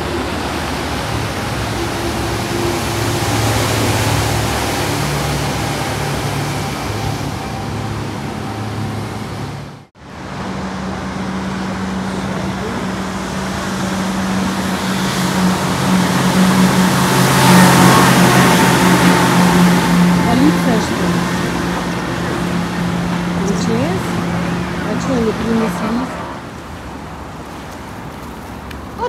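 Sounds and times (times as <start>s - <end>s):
car engines humming: 0.0s - 29.0s.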